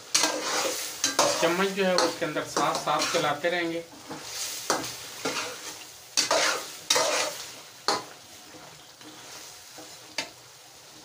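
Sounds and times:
metal spatula scraping pan: 0:00.0 - 0:10.3
frying oil sizzling: 0:00.0 - 0:11.0.

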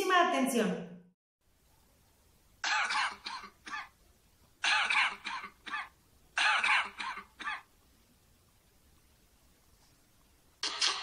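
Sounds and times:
person coughing: 0:02.6 - 0:03.9, 0:04.6 - 0:07.7.

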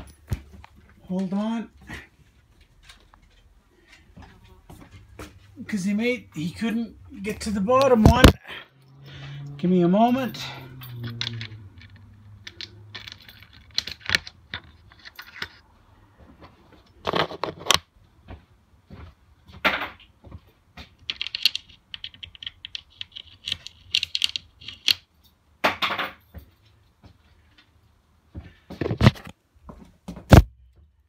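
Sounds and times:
metallic clinks: 0:08.7 - 0:15.6.

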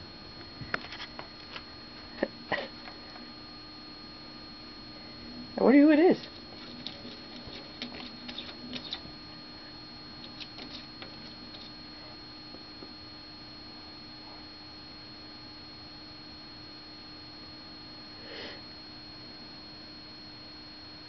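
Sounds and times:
faint electrical hum: 0:00.0 - 0:21.0.

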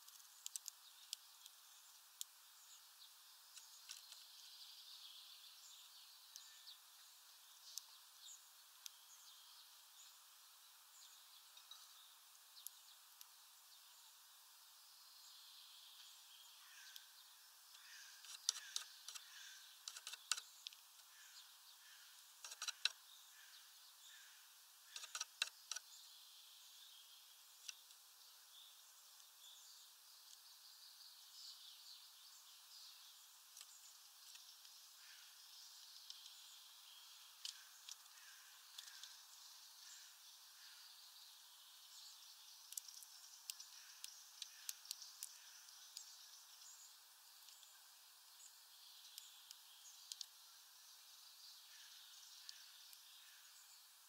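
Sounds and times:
distant bird chirps: 0:15.0 - 0:54.0.

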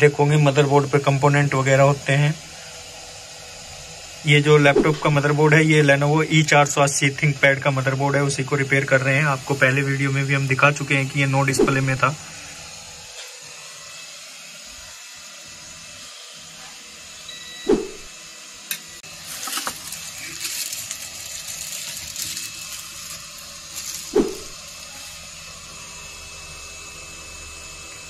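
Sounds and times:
rustling and scraping: 0:19.2 - 0:25.2.

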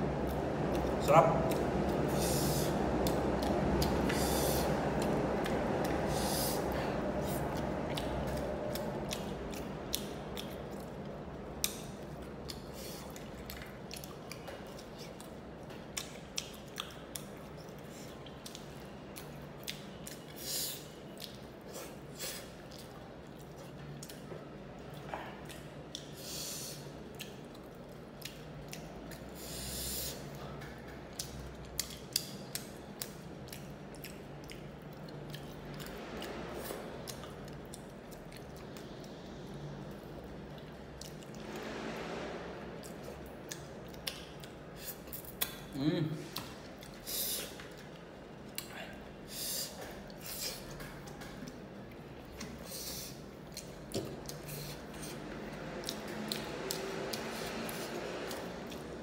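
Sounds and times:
close-miked chewing and lip smacks: 0:00.2 - 0:41.4, 0:42.8 - 0:59.0
short breathy hisses: 0:49.3 - 0:50.6.

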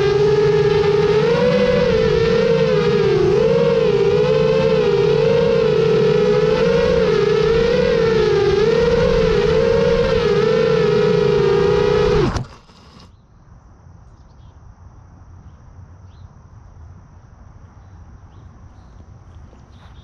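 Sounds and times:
quadcopter motors buzzing: 0:00.0 - 0:13.2.

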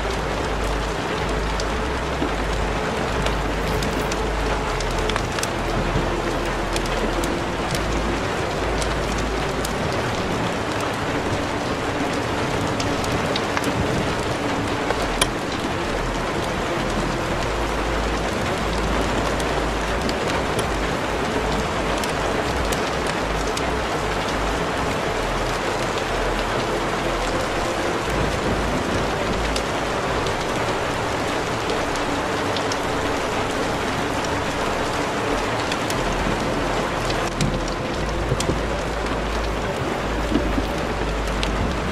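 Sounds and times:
deep rumbles: 0:00.0 - 0:41.9
heavy rain hissing: 0:00.0 - 0:41.9.

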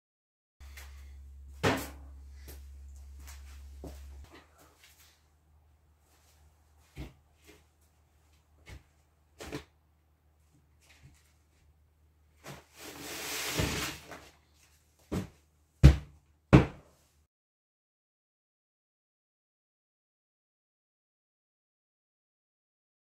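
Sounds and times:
board thudding against wall: 0:01.6 - 0:02.0, 0:15.1 - 0:16.8
board scraping slide: 0:12.6 - 0:14.2
board knocks and bumps: 0:15.1 - 0:16.9.

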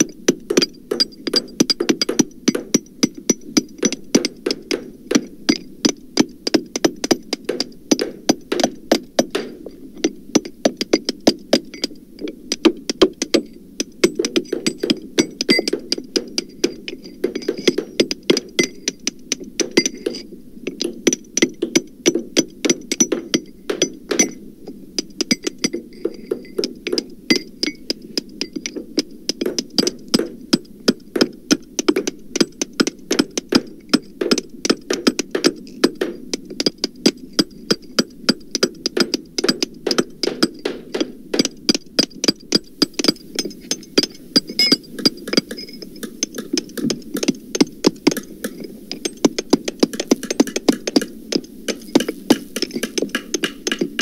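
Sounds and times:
hammers striking: 0:00.0 - 0:03.2, 0:03.8 - 0:05.3, 0:06.2 - 0:09.7, 0:14.1 - 0:18.9, 0:20.8 - 0:24.4, 0:28.4 - 0:54.0.

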